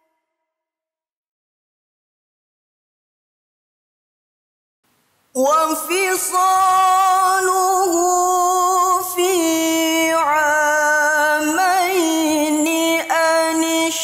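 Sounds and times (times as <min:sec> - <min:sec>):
woman reciting melodically: 0:05.4 - 0:14.0.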